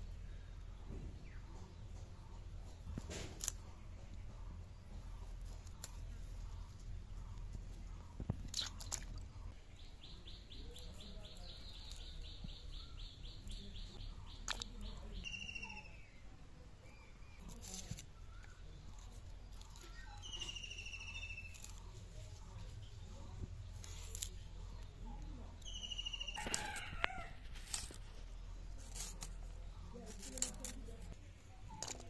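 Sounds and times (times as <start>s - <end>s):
small birds chirping: 0.0s - 32.0s
knife crunching through cauliflower: 21.1s - 22.2s, 23.7s - 24.5s, 26.4s - 32.0s.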